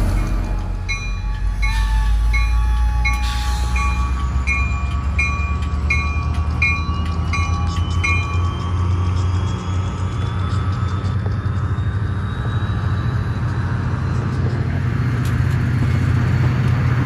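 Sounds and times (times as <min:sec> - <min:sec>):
train bell ringing: 0:00.0 - 0:13.6
train rumbling: 0:00.0 - 0:17.0.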